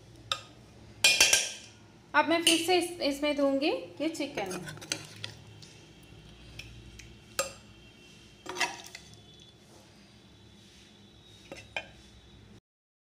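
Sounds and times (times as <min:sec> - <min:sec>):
metal ladle clinking on pot: 0:00.3 - 0:01.7.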